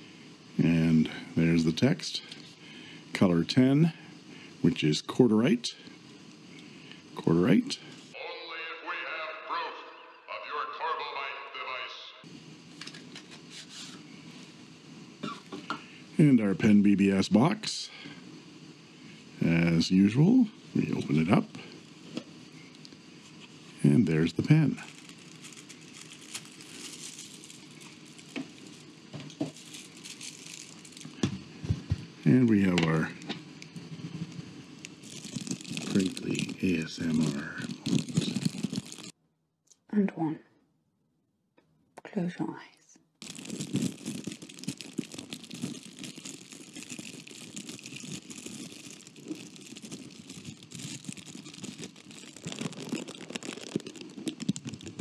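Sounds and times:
plastic sleeve and foam rustling: 12.8 - 14.1, 23.2 - 33.1, 33.8 - 39.2, 43.2 - 55.0.

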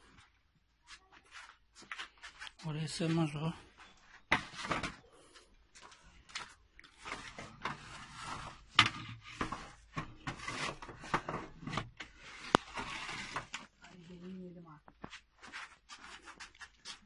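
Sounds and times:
wooden peel scraping metal tin: 7.0 - 13.7.

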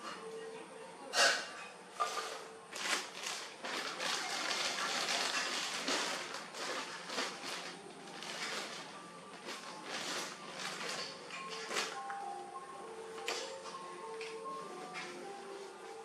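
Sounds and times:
plastic package crinkling: 2.8 - 12.1.

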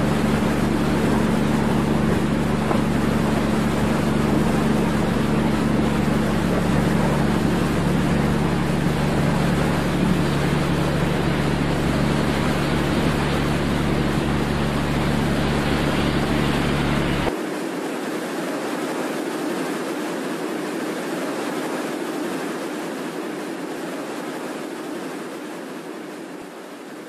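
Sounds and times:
ship engine hum: 0.0 - 17.4
sea noise: 0.0 - 27.0.

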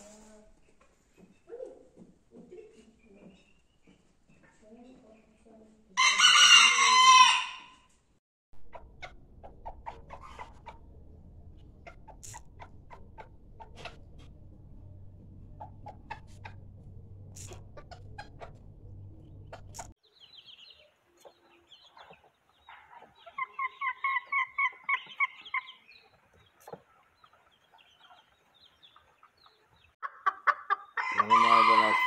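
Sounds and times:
chicken clucking: 8.6 - 20.0, 21.1 - 32.0
low hum: 8.6 - 20.0.

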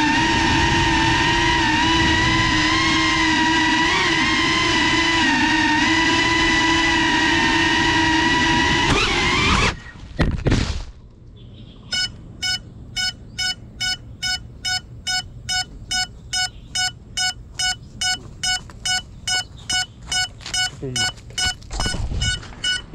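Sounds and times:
short high electronic beeps: 11.9 - 22.9.

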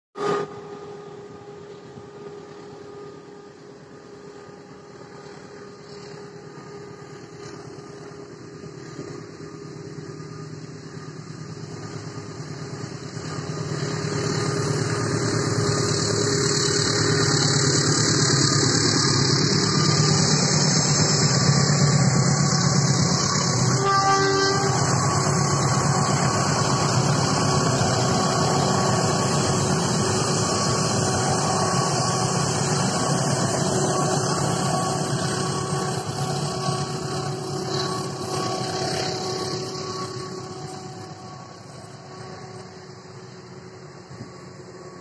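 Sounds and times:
locomotive engine drone: 0.2 - 45.0.

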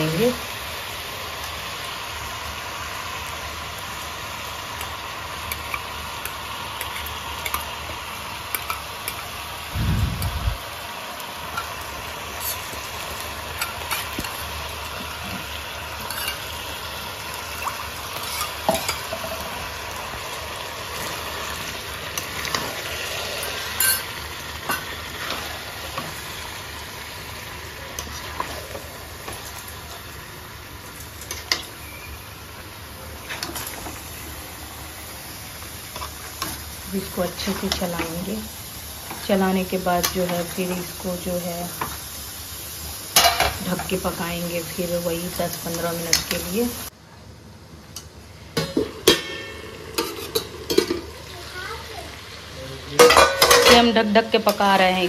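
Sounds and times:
food sizzling in a pan: 0.0 - 55.0
spoon scraping a pan: 11.5 - 12.8, 15.2 - 16.5, 18.2 - 19.6, 22.2 - 26.1, 49.0 - 51.1.

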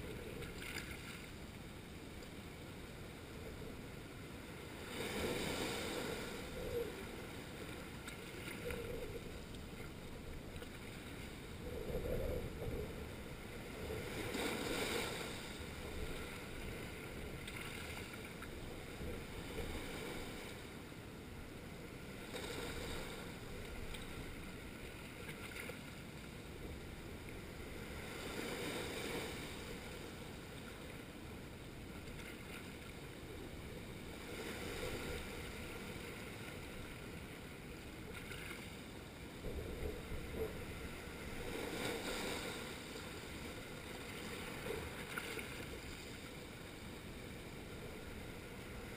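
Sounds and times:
waves washing over rocks: 39.4 - 47.2.

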